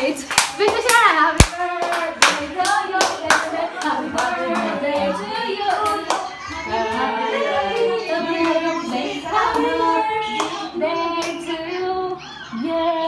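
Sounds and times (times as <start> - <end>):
hand claps: 0.3 - 4.7
group of voices singing together: 1.4 - 13.0.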